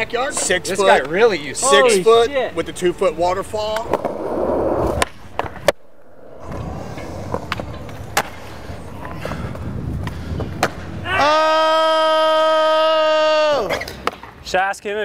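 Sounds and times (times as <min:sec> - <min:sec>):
skateboards rolling on concrete: 0:00.0 - 0:15.0
skateboards clacking: 0:06.4 - 0:11.2, 0:13.7 - 0:14.6.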